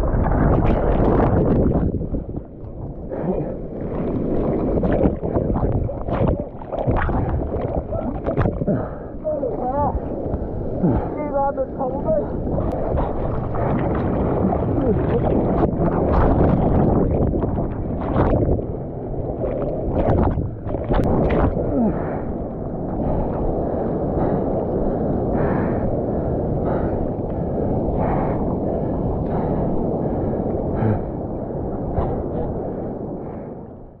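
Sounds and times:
water splashing on camera: 0.0s - 11.2s, 12.2s - 23.6s
surf and whitewater rushing: 3.0s - 32.8s.

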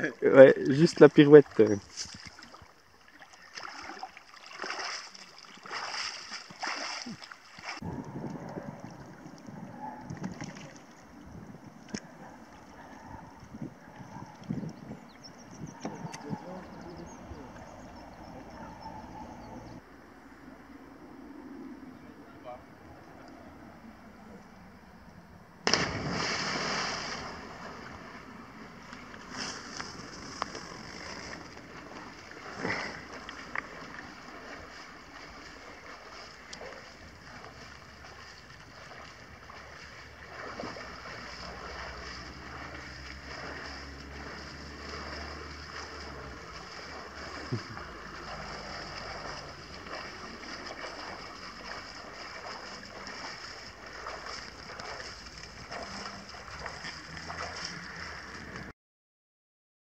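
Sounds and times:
wind buffeting microphone: 7.8s - 19.8s
fast-flowing river rushing: 40.0s - 58.6s.

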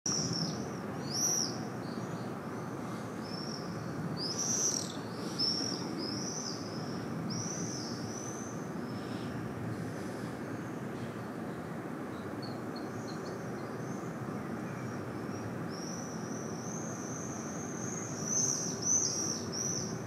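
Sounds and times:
swifts screaming: 2.6s - 8.5s.

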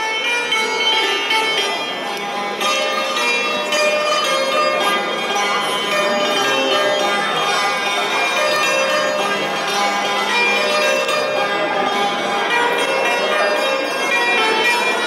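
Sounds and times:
hammered dulcimer playing: 0.0s - 15.0s.

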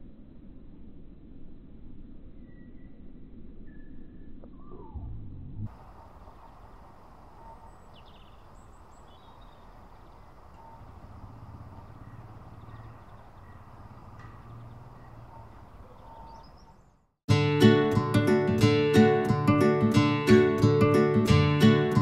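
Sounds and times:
low rumble: 0.0s - 7.4s
bird chirps: 2.4s - 5.1s, 5.7s - 17.2s
strummed acoustic guitar music: 17.3s - 22.0s.

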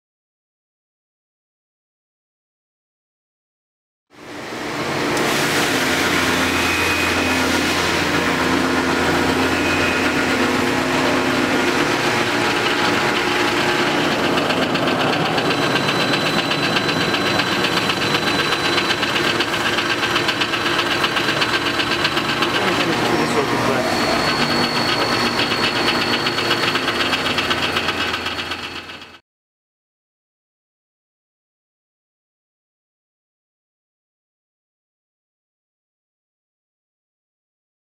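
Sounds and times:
machine whine and hum: 4.2s - 29.2s
fast even rattle: 11.9s - 29.2s.

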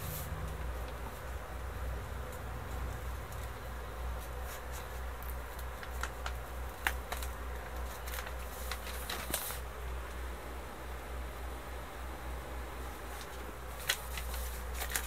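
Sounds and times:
low steady hum: 0.0s - 15.0s
paper crackling and rustling: 2.3s - 9.7s, 13.1s - 15.0s.

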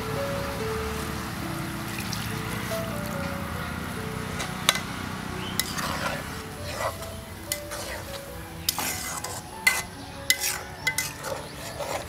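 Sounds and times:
curry sizzling: 0.0s - 12.0s
metal spatula scraping a pan: 5.6s - 12.0s.

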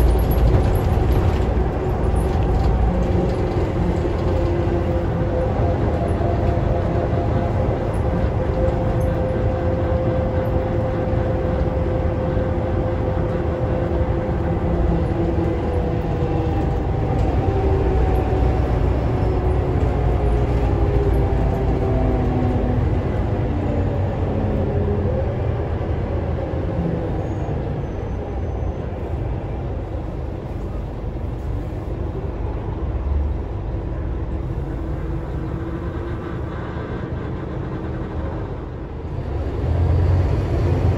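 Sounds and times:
bus engine drone: 0.0s - 40.9s
road rumble: 0.0s - 40.9s.

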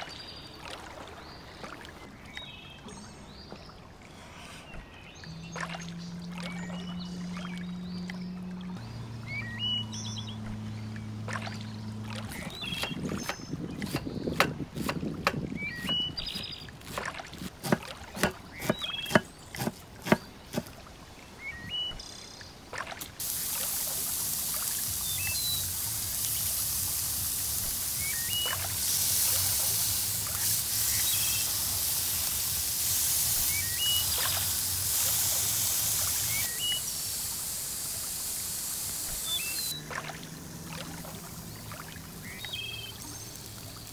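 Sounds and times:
small birds chirping: 0.0s - 43.9s
burger patties sizzling: 23.2s - 39.8s.

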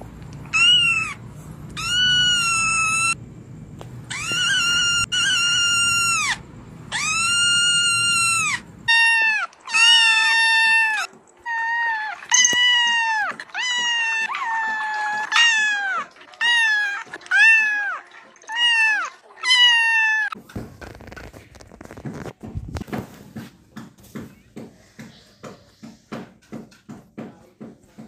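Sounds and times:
cat crying long high cries: 0.5s - 1.2s, 1.8s - 3.2s, 4.1s - 20.4s.

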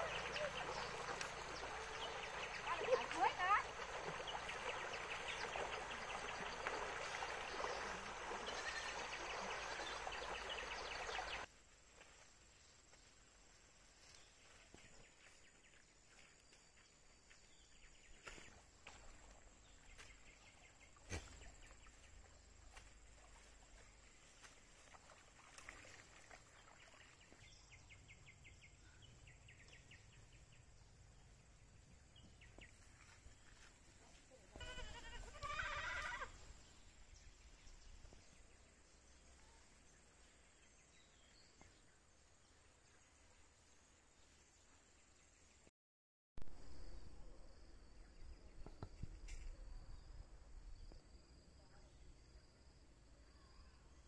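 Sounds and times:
goat bleating: 34.6s - 36.4s.

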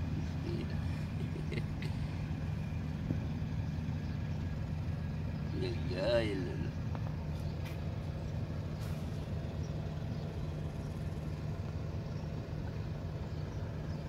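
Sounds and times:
background rumble: 0.0s - 14.0s
low mechanical hum: 0.0s - 14.0s.

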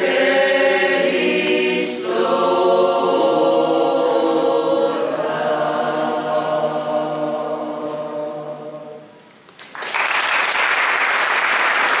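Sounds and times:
choir holding a chord: 0.0s - 9.2s
audience applause: 9.6s - 12.0s.

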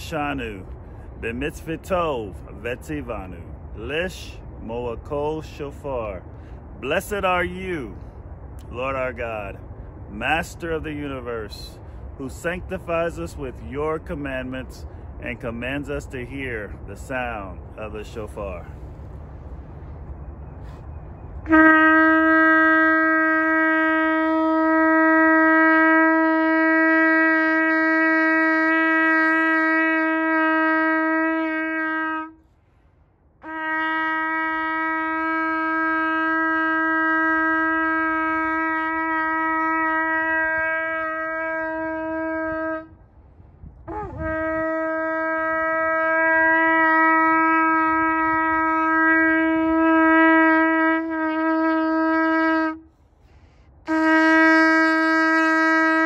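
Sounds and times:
shofar blasts: 21.4s - 32.5s, 33.4s - 43.1s, 43.8s - 53.1s, 53.8s - 56.0s.

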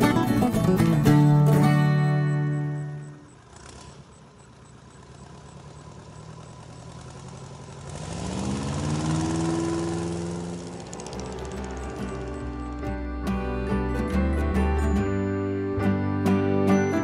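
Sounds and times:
airboat engine revving: 3.2s - 13.3s.

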